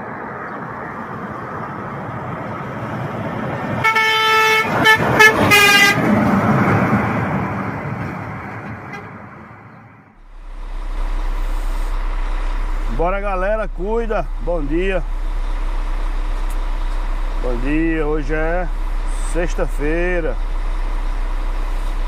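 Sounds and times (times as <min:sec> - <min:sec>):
truck passing by: 0:00.0 - 0:22.0
truck horn blasts: 0:03.8 - 0:06.2, 0:08.6 - 0:09.3.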